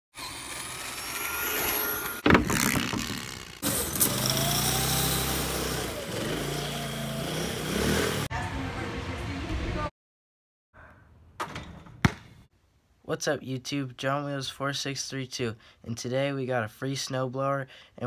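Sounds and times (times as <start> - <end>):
rc car motor whining: 0.2 - 7.7
small engine running: 0.2 - 8.3.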